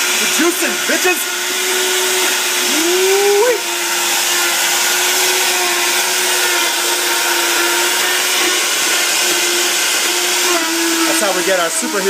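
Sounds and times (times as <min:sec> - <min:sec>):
electric blender running: 0:00.0 - 0:12.0.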